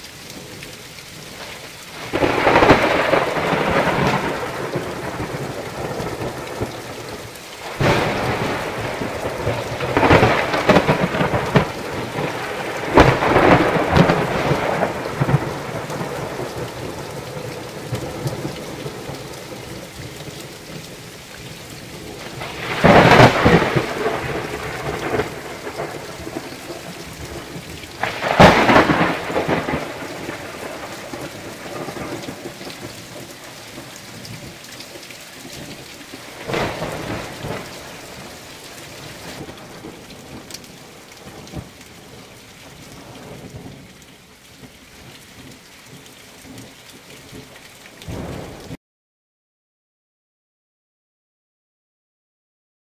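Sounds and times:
heavy rain falling: 0:00.0 - 0:48.8
thunder claps: 0:02.0 - 0:20.2, 0:21.9 - 0:34.5, 0:35.6 - 0:42.2, 0:48.0 - 0:48.8.

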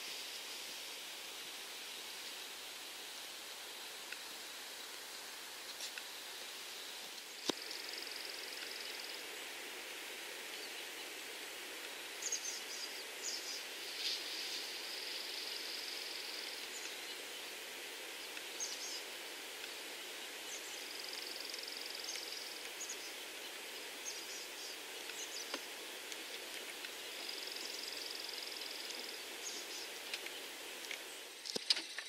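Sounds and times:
steady background hiss: 0:00.0 - 0:32.0.

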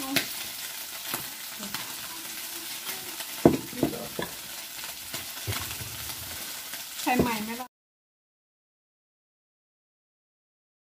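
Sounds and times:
meat sizzling on a grill pan: 0:00.0 - 0:07.7.

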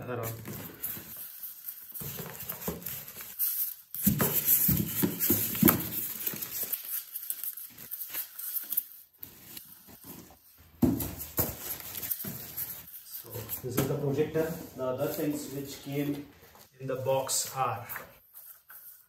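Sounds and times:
plastic crinkling: 0:00.0 - 0:19.0.

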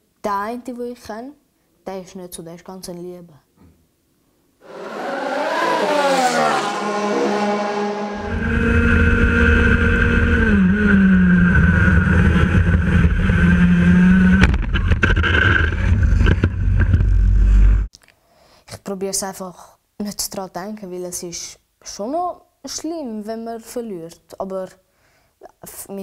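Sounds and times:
go-kart engine at high revs: 0:04.6 - 0:17.8
low rumble: 0:05.5 - 0:10.5.

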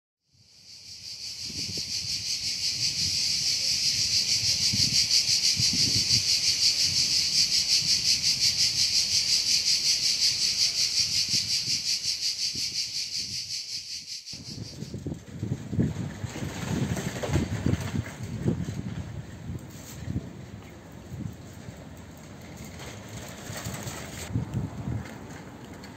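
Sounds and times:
cicadas buzzing in chorus: 0:00.3 - 0:15.0.

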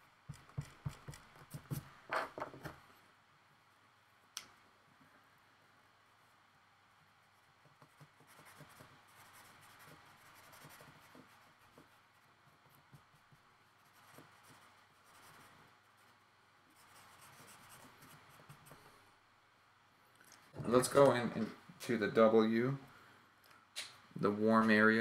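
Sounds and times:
felt-tip marker scratching paper: 0:07.7 - 0:16.1.

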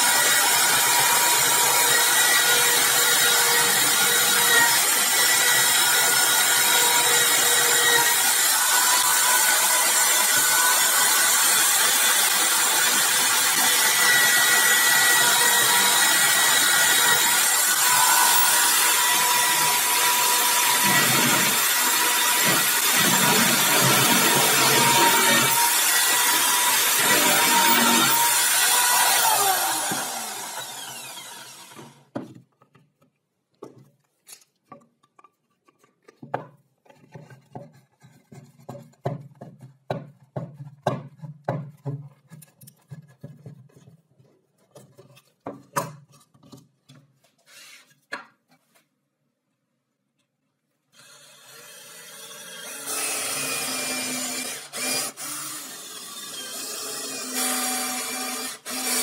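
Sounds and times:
cordless drill boring into wood: 0:00.0 - 0:32.1, 0:51.0 - 0:59.0
drill motor winding down: 0:06.3 - 0:32.0.

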